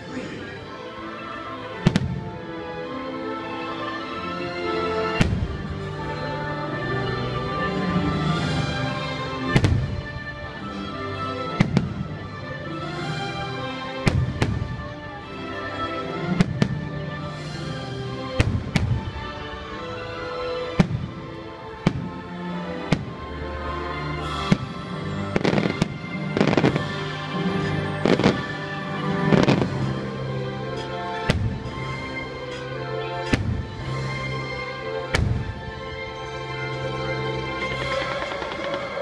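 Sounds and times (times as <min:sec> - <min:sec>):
soundtrack music: 0:00.0 - 0:39.0
firework bangs: 0:35.1 - 0:35.5, 0:37.7 - 0:39.0.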